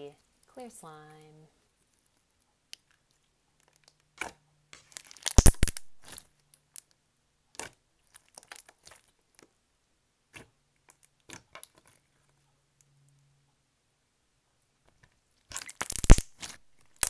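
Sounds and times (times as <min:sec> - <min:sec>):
slime bubble pops and crackles: 0:04.2 - 0:06.2, 0:15.5 - 0:17.0.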